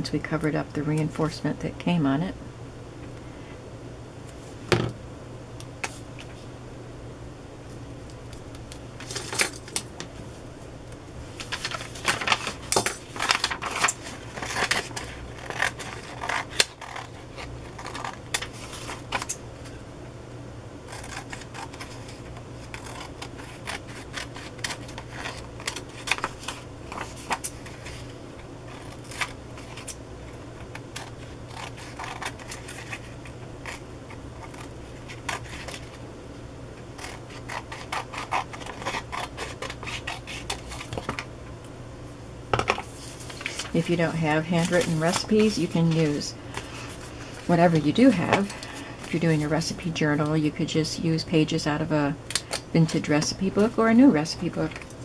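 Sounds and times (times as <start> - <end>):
paper rustling: 11.4 - 19.3, 42.7 - 49.3
scissors snipping paper: 11.6 - 19.4, 20.9 - 27.6, 30.7 - 33.8, 37.0 - 41.2.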